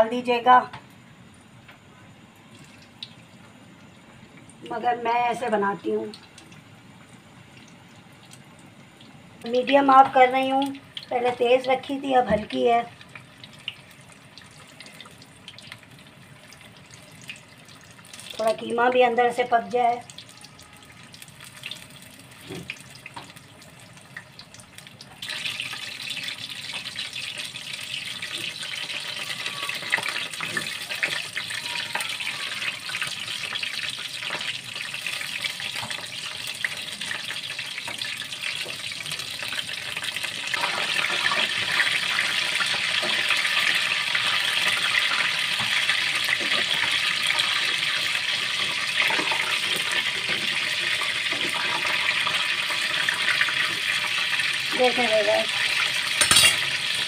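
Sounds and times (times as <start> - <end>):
hot oil sizzling and crackling: 0.0 - 57.0.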